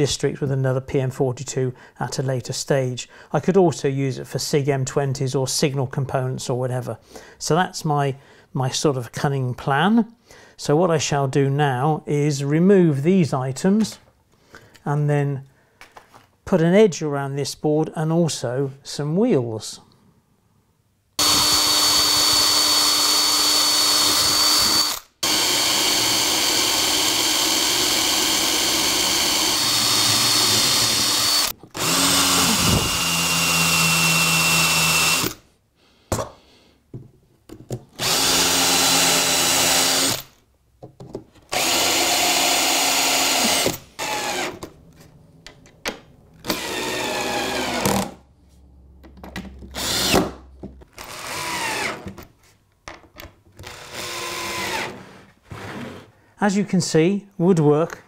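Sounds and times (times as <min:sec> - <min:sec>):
cordless drill driving screws: 0:21.2 - 0:35.4, 0:38.0 - 0:40.3, 0:41.5 - 0:44.7, 0:46.4 - 0:48.2, 0:49.8 - 0:50.3, 0:50.9 - 0:52.2, 0:53.6 - 0:55.0.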